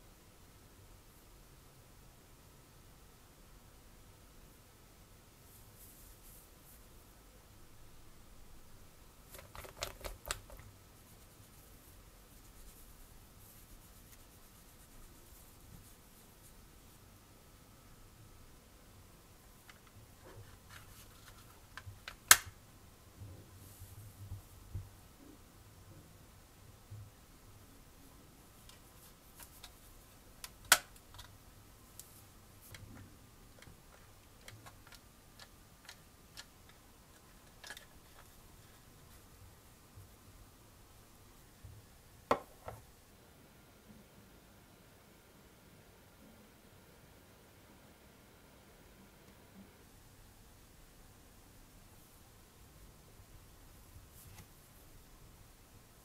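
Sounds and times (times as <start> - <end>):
small parts clicking and tapping: 32.7 - 38.3.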